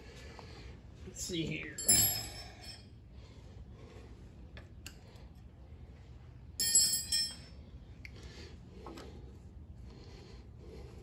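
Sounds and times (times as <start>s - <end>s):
metal clinking with ringing tone: 1.7s - 3.0s, 6.6s - 7.7s.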